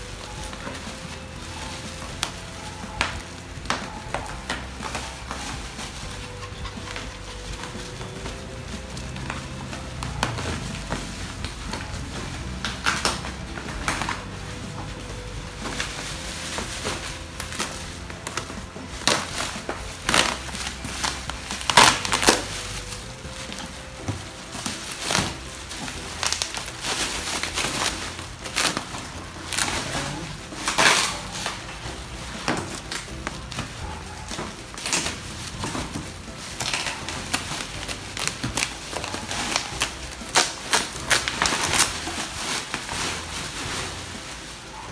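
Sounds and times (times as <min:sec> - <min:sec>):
bubble wrap crinkling: 0:00.0 - 0:44.9
scissors cutting bubble wrap: 0:00.0 - 0:44.9.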